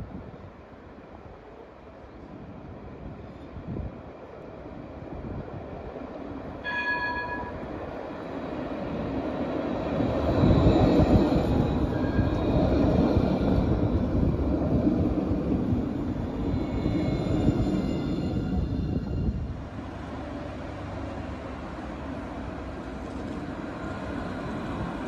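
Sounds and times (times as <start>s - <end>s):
tram passing: 0.0s - 25.0s
short chime-like tone: 6.6s - 7.7s.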